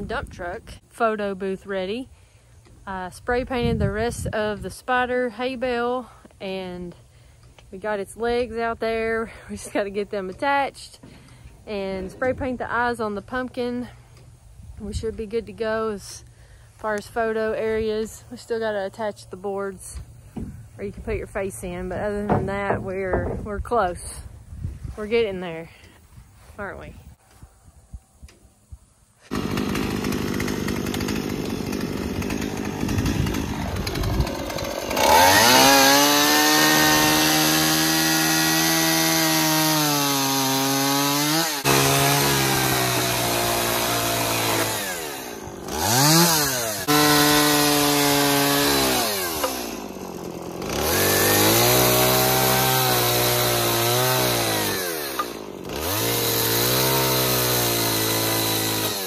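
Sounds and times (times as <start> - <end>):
chainsaw cutting wood: 16.0 - 24.2, 29.2 - 59.0.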